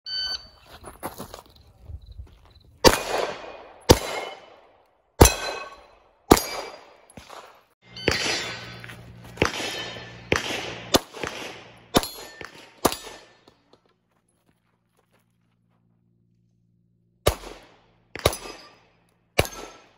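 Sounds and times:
pistol shots: 2.8 - 13.6, 17.2 - 19.9
steel targets clanging: 5.2 - 13.8, 18.2 - 19.9.

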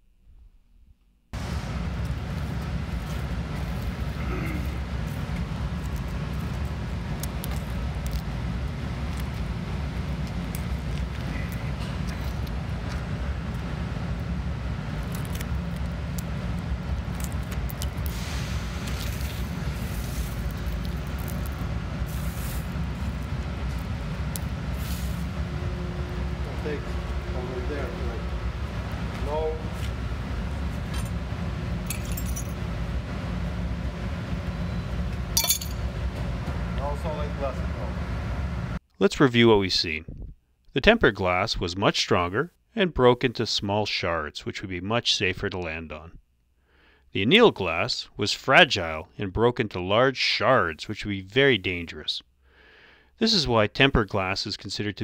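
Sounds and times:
steady low rumble: 0.0 - 38.8, 39.9 - 41.0
glass pebbles clinking: 31.9 - 32.6, 35.4 - 35.8.

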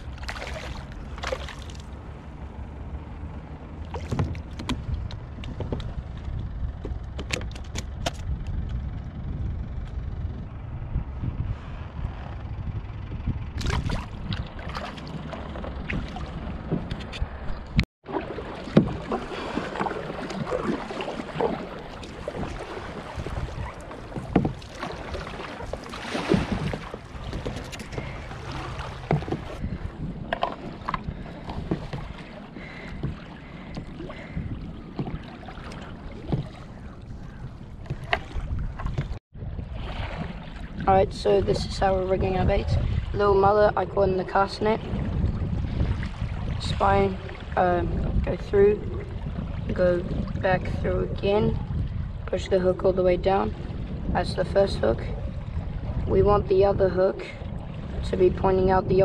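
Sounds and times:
paddle splashes: 0.0 - 2.4, 3.8 - 6.4, 13.6 - 17.3, 18.0 - 43.7, 44.6 - 48.2, 57.2 - 58.4
water lapping around kayak: 0.0 - 59.0
wind buffeting microphone: 0.0 - 59.0.

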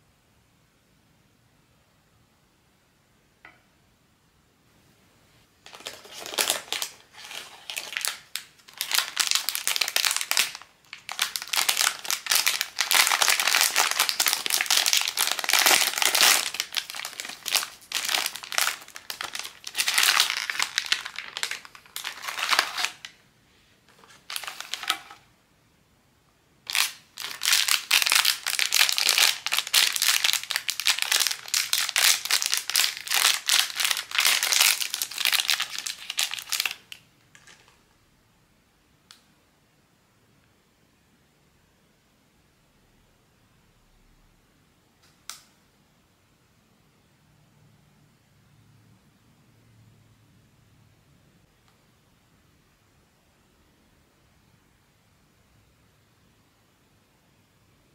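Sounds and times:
plastic packaging crinkling: 5.6 - 23.2, 23.9 - 25.2, 26.7 - 37.8.

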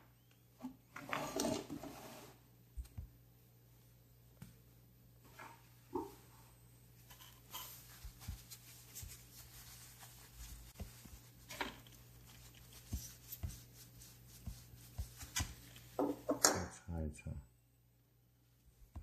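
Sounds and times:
paper tissue rustling: 7.0 - 15.9.

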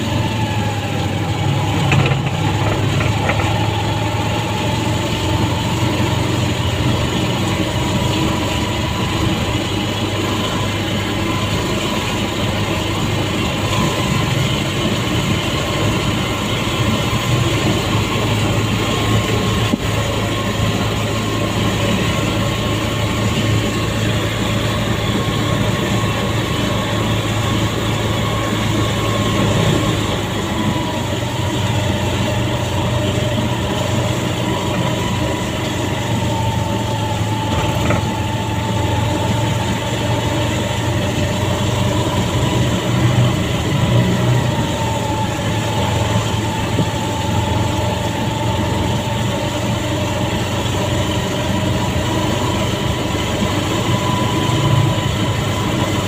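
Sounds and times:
motorcycle engine running: 0.0 - 56.0
rain and wet road noise: 0.0 - 56.0.

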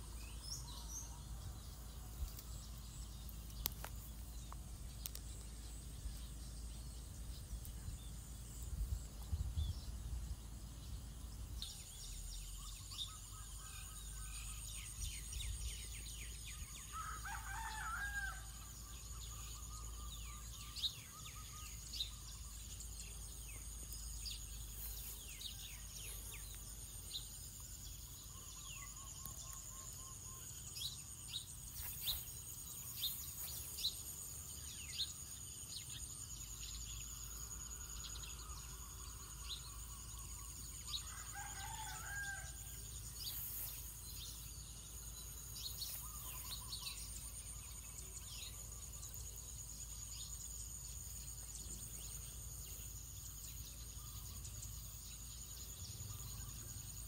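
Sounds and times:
high insect whine: 0.0 - 57.0
rooster crowing: 17.0 - 18.6, 41.0 - 42.7.

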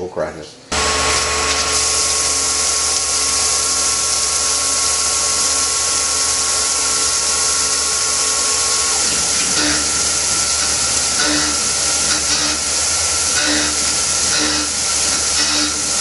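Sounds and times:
mill spindle whine: 0.7 - 16.0
coolant spraying hiss: 1.4 - 16.0.

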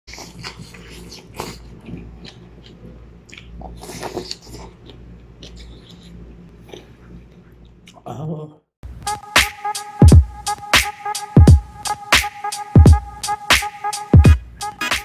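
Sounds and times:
wet chewing sounds: 0.1 - 8.0.

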